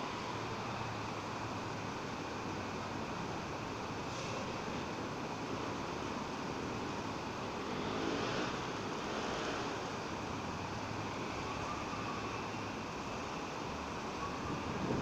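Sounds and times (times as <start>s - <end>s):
wind on microphone: 14.4s - 15.0s.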